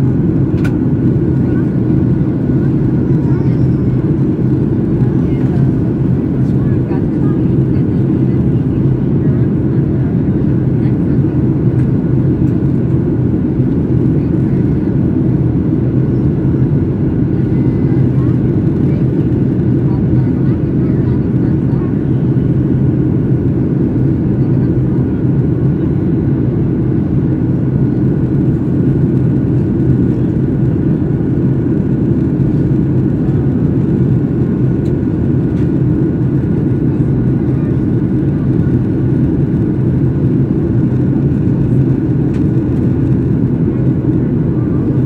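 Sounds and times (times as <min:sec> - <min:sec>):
airplane cabin engine hum: 0:00.0 - 0:45.0.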